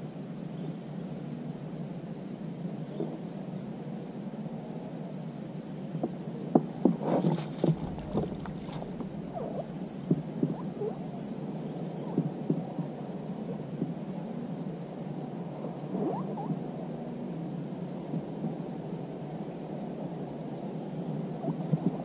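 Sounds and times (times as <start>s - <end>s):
steady low hum: 0.0s - 22.0s
landing net rustling: 7.0s - 10.7s.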